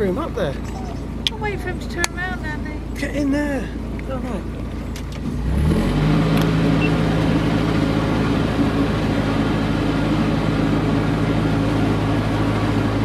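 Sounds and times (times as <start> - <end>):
diesel engine revving: 0.0 - 13.0.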